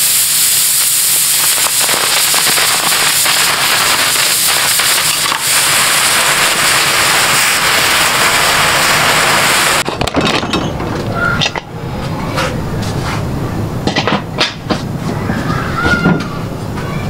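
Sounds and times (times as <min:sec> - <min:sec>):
pressure cooker venting steam: 0:00.0 - 0:09.9.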